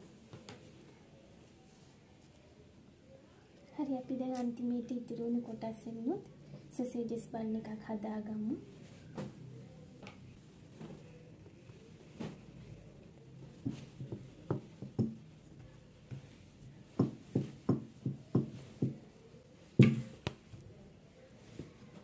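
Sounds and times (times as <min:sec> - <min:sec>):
hands patting dough on wooden board: 0:13.6 - 0:19.1.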